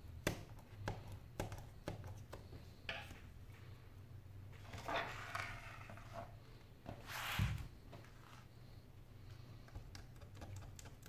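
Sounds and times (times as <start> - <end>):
tablet scraping on wooden desk: 4.7 - 6.3.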